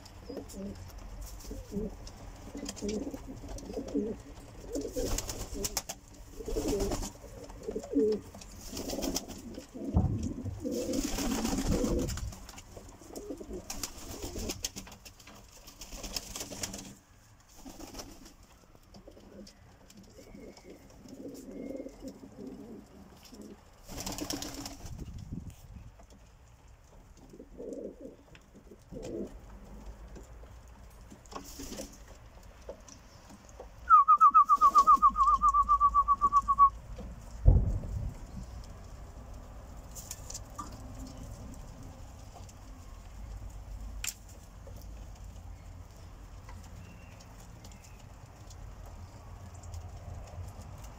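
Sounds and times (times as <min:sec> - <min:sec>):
pigeons cooing: 0:00.2 - 0:12.3, 0:13.0 - 0:14.7, 0:19.0 - 0:23.6, 0:27.2 - 0:29.8
loud fast-pulsing whistle: 0:33.9 - 0:36.7.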